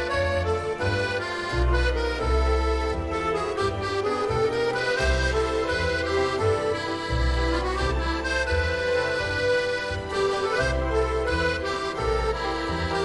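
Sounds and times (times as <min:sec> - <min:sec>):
held melody notes: 0:00.0 - 0:13.0
low bass line: 0:00.0 - 0:13.0.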